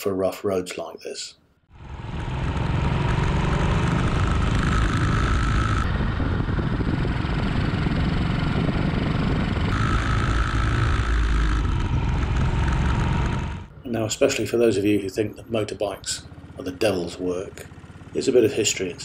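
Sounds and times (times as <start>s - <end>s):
motorcycle engine running: 1.7s - 19.0s
wind on microphone: 5.6s - 12.2s.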